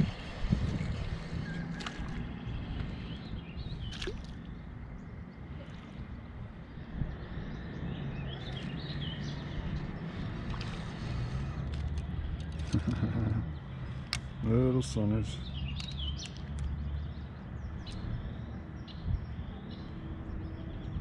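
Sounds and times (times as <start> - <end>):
steady low rumble: 0.0 - 16.2
faint bird chirps: 1.4 - 4.4
light clicks: 15.6 - 16.8.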